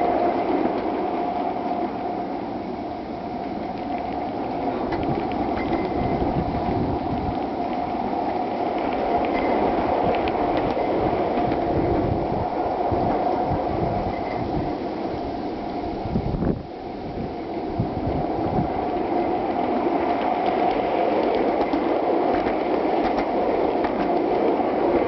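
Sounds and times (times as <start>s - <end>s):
continuous ringing tone: 0.0s - 25.0s
small metal wheels rumbling on rail: 0.0s - 25.0s
faint clicks: 7.1s - 11.6s.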